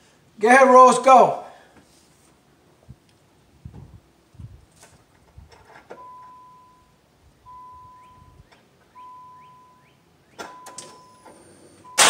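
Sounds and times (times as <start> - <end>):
dashboard warning chime: 6.0 - 9.9, 10.5 - 12.0.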